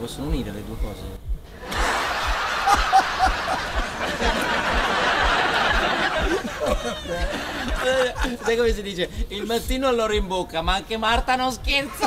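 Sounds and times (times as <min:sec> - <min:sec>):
low thumping beat: 0:00.0 - 0:12.0
men laughing: 0:01.6 - 0:09.6.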